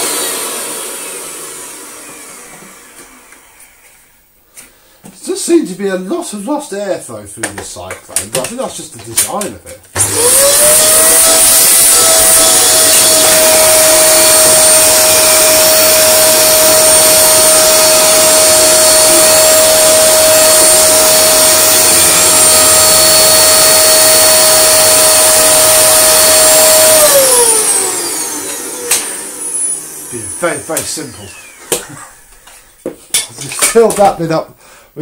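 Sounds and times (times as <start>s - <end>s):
vacuum cleaner whine: 0.0s - 4.3s, 9.3s - 32.7s.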